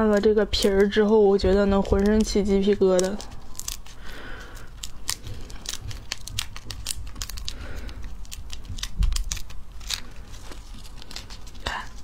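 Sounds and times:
fruit skin crackling and tearing: 0:00.0 - 0:12.0.

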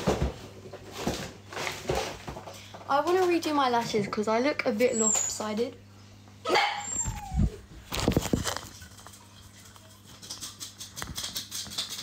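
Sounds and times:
puppy whining: 0:04.8 - 0:05.6, 0:06.4 - 0:07.8.

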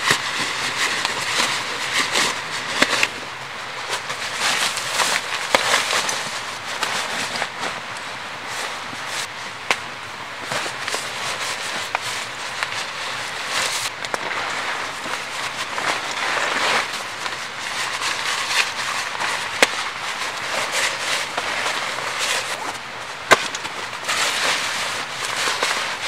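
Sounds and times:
nylon fabric rustling: 0:10.4 - 0:26.0.

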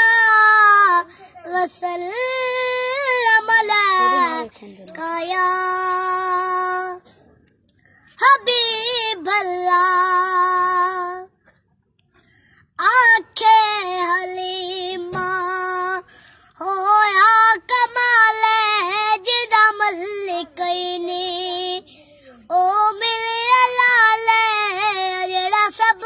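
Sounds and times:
boy singing solo hymn: 0:00.0 - 0:07.0, 0:08.2 - 0:11.3, 0:12.8 - 0:26.0.

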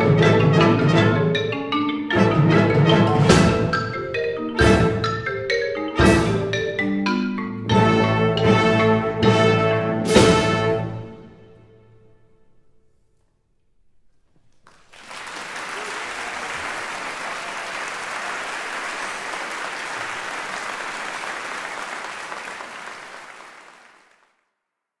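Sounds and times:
concert band and marimba chord: 0:00.0 - 0:11.5
audience applause: 0:14.6 - 0:24.4.

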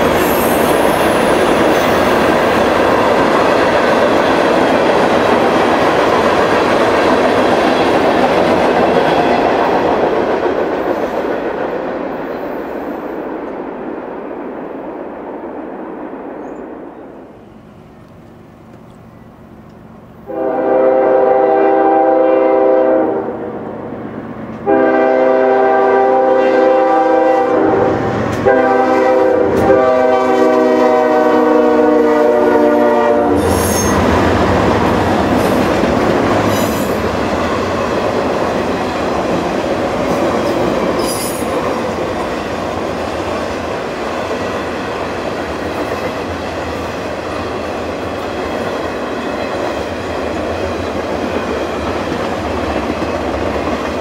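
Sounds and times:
train wheels rolling over rails: 0:00.0 - 0:20.5, 0:27.3 - 0:54.0
train horn blasts: 0:20.2 - 0:23.6, 0:24.6 - 0:34.2.

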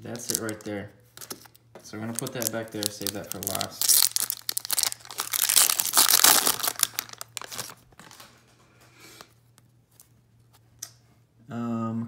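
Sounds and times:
foil wrapper tearing and crinkling: 0:00.0 - 0:00.6, 0:01.2 - 0:08.2
cards rustling: 0:00.0 - 0:08.4.

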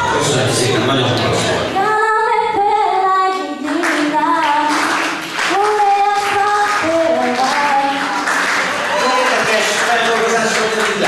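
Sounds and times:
woman singing unaccompanied: 0:01.8 - 0:08.3.

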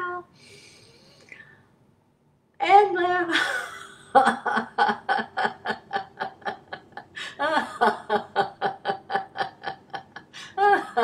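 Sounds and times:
woman laughing: 0:03.3 - 0:11.0.

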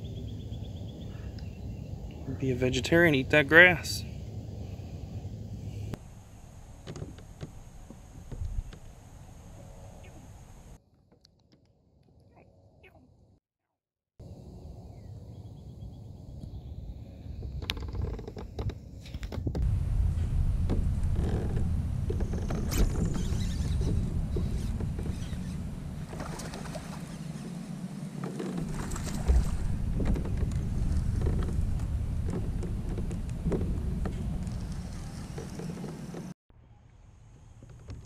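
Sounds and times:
boat knocks and creaks: 0:06.8 - 0:09.0, 0:17.3 - 0:36.4
wind buffeting microphone: 0:18.4 - 0:36.3.

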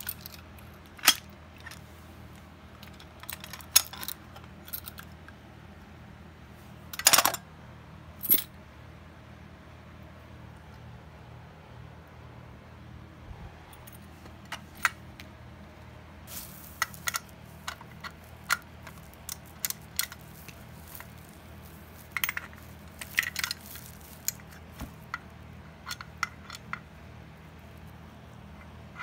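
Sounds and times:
metallic clicks and clinks: 0:00.0 - 0:01.8, 0:02.8 - 0:05.2, 0:16.3 - 0:25.2
low steady hum: 0:00.0 - 0:29.0.

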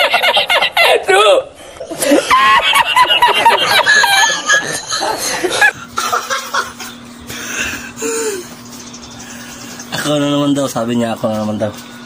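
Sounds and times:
man laughing high-pitched: 0:00.0 - 0:07.0
steady low hum: 0:00.0 - 0:12.0.

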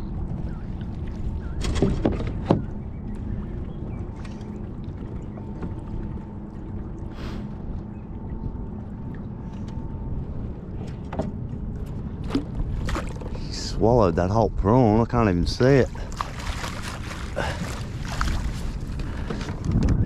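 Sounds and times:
choppy water splashing: 0:00.0 - 0:20.0
wind: 0:00.0 - 0:20.0.

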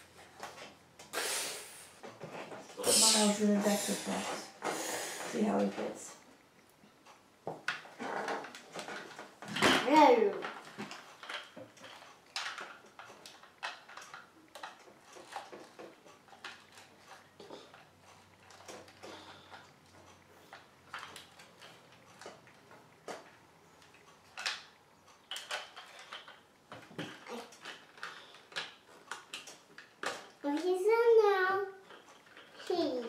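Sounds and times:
plastic toy parts clicking: 0:07.7 - 0:19.7, 0:20.5 - 0:30.7.

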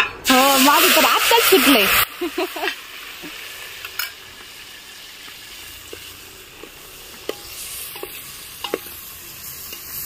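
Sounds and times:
masala sizzling in hot oil: 0:00.2 - 0:10.0
light stirring taps: 0:05.2 - 0:09.0
ladle clinking on pot: 0:07.3 - 0:09.0.

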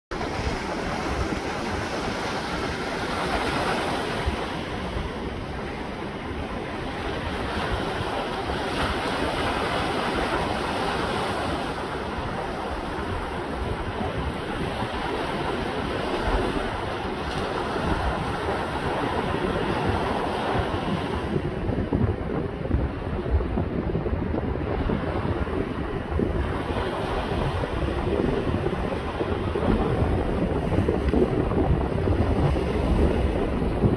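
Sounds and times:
waves washing up beach: 0:00.1 - 0:33.9
wind buffeting microphone: 0:00.1 - 0:33.9.

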